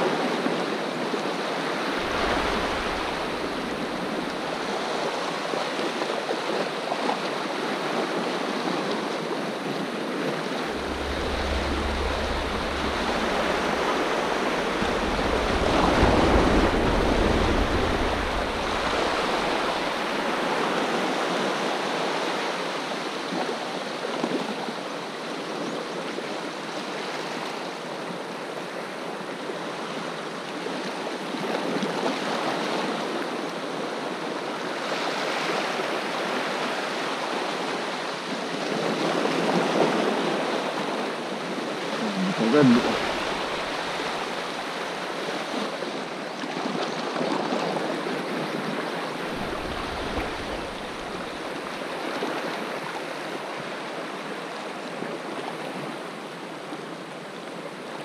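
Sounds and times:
waves washing over rocks: 0:01.4 - 0:07.4, 0:10.4 - 0:22.1, 0:42.0 - 0:55.0
low rumble: 0:01.8 - 0:05.4, 0:10.4 - 0:20.4, 0:42.0 - 0:44.8, 0:49.2 - 0:52.0.

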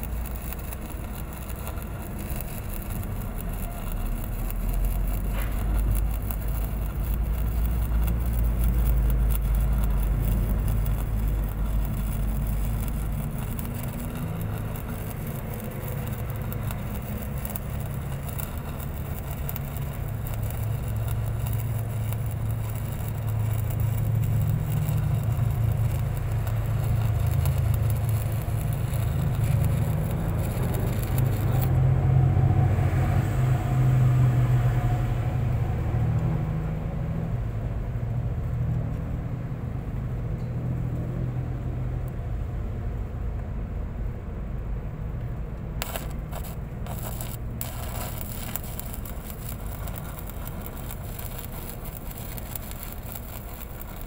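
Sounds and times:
stick welding crackle: 0:00.0 - 0:33.6, 0:45.6 - 0:54.0
low engine rumble: 0:00.0 - 0:54.0.

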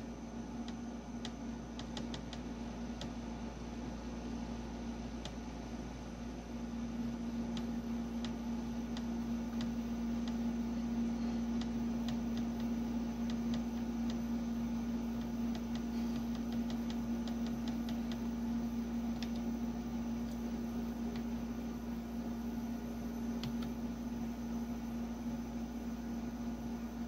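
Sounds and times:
steady low hum: 0:00.0 - 0:27.0
laptop keyboard keys clicking: 0:01.2 - 0:02.4.

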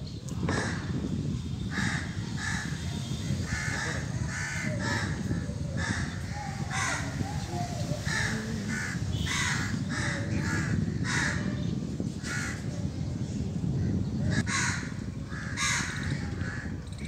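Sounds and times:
steady low rumble: 0:00.0 - 0:17.0
crows cawing: 0:03.5 - 0:07.2, 0:08.1 - 0:11.4, 0:14.3 - 0:16.8.

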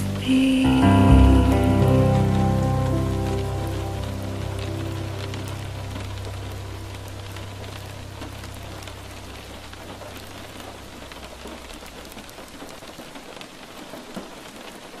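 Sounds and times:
low held musical note: 0:00.0 - 0:10.7
rain on a hard surface: 0:00.0 - 0:15.0.

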